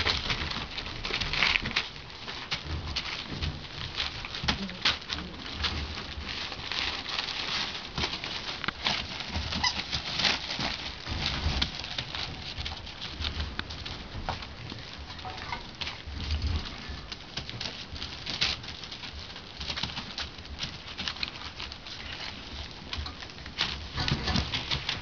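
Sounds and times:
newspaper rustling and crinkling: 0.0 - 25.0.

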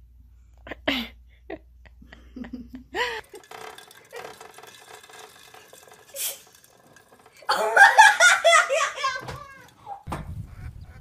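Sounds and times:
person giggling: 0.7 - 3.4, 7.5 - 9.6
plastic ball rattling: 3.0 - 9.9.

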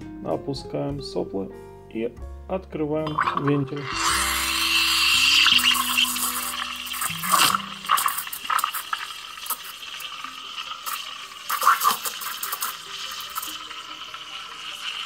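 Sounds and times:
steam wand hissing into milk: 3.8 - 15.0.

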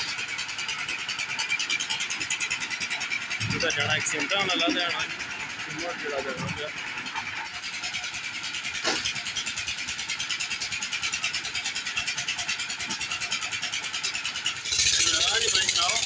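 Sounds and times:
concrete mixer engine chugging: 0.0 - 16.0.

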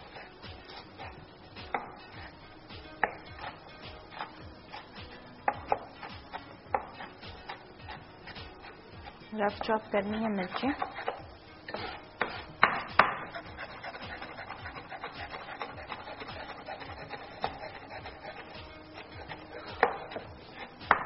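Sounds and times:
knife chopping on wooden board: 3.0 - 3.5, 5.5 - 7.6, 10.4 - 18.7, 19.3 - 21.0.

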